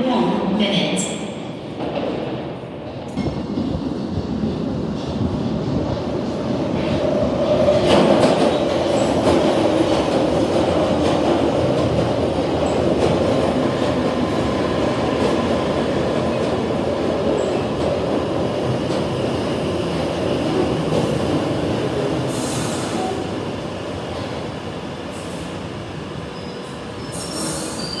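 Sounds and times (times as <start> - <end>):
train wheel rumble and clatter: 1.8 - 23.2
brake squeal: 26.4 - 28.0.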